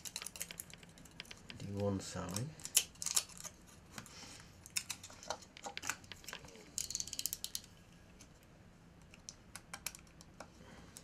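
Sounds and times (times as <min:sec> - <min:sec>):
foil tape crinkling: 0:00.0 - 0:01.4, 0:02.3 - 0:03.7.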